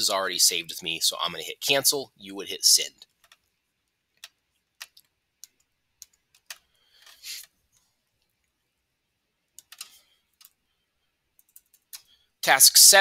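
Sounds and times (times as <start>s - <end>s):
computer mouse clicks: 3.0s - 3.5s, 4.1s - 7.6s, 9.5s - 10.6s, 11.3s - 12.1s.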